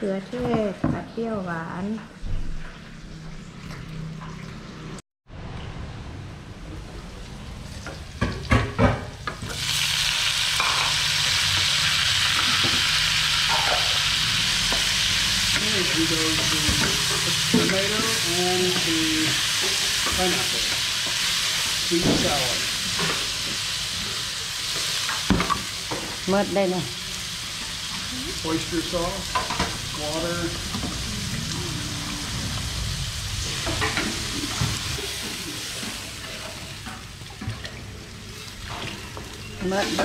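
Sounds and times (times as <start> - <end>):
food sizzling in a wok: 6.8 - 37.4, 38.1 - 40.0.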